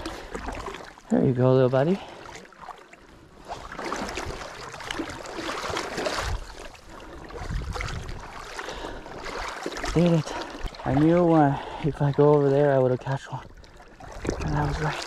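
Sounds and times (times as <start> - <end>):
river water sloshing and splashing: 0.0 - 15.0
wind rumble on microphone: 5.6 - 8.5.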